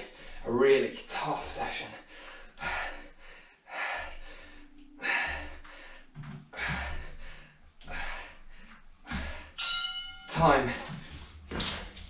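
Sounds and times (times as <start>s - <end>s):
man breathing hard: 1.9s - 9.6s.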